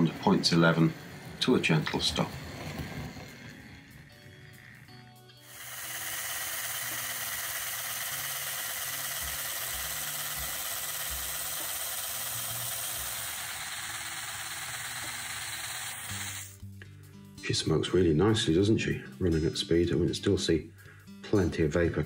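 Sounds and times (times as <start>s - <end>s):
soft background music: 0.0s - 13.4s, 16.0s - 22.0s
model locomotive motor whirring: 0.0s - 16.6s.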